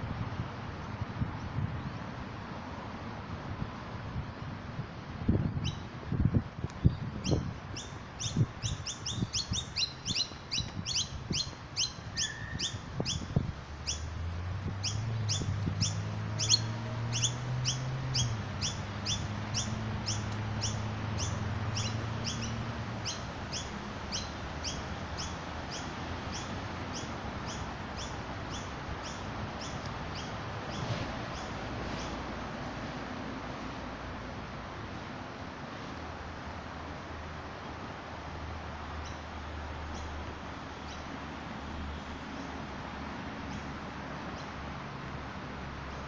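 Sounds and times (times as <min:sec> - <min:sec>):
small bird chirping: 0:06.8 - 0:14.1, 0:14.8 - 0:30.8.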